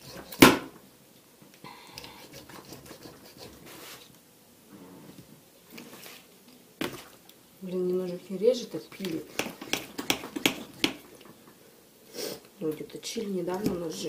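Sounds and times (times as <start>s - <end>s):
knife sawing through chicken: 2.2s - 4.1s
knife knocking on plastic board: 9.4s - 11.1s.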